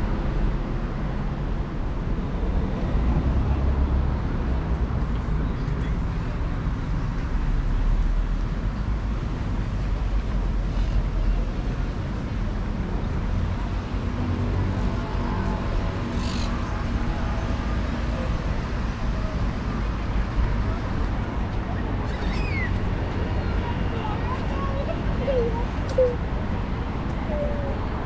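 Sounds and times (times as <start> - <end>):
road traffic hum: 0.0 - 28.0
faint voices: 11.1 - 28.0.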